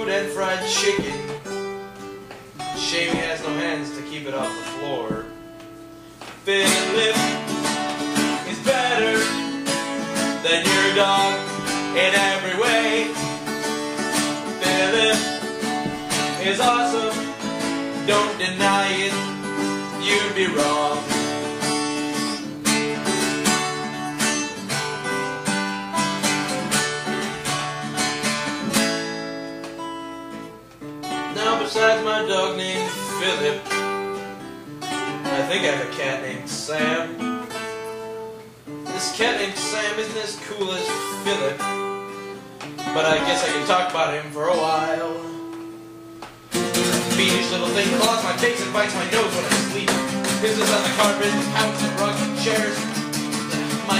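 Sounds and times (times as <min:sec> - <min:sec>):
acoustic guitars strumming: 0:00.0 - 0:53.9
person singing: 0:06.4 - 0:07.5, 0:08.3 - 0:09.4, 0:10.4 - 0:13.3, 0:14.5 - 0:15.5, 0:16.2 - 0:17.4, 0:18.0 - 0:21.4, 0:46.9 - 0:53.0.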